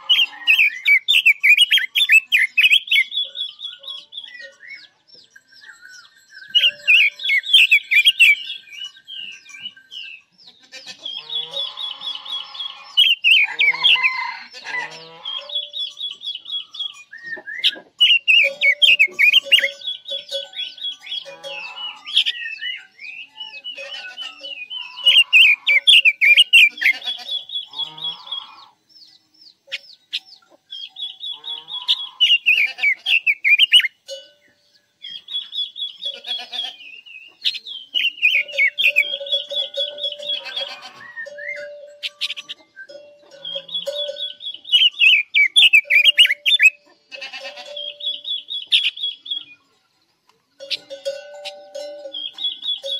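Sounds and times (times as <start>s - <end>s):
lower bird calls: 0.0s - 49.7s
songbird warbling: 15.3s - 28.8s, 29.7s - 46.8s.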